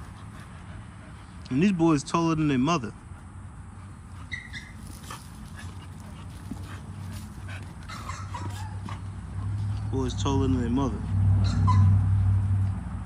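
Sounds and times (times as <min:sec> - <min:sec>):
dog whining: 0:04.2 - 0:05.1, 0:07.8 - 0:09.0
dogs scuffling: 0:04.2 - 0:09.9.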